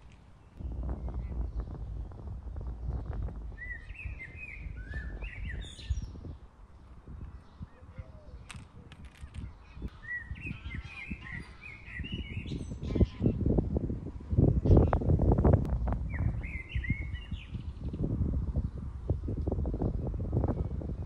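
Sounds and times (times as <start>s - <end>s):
songbird chirping: 0.0s - 13.4s, 16.1s - 18.0s
wind rumble on microphone: 0.0s - 21.0s.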